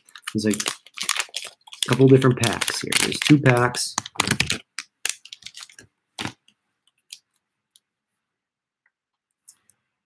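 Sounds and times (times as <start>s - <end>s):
plastic and foil wrappers crackling: 0.0s - 6.4s.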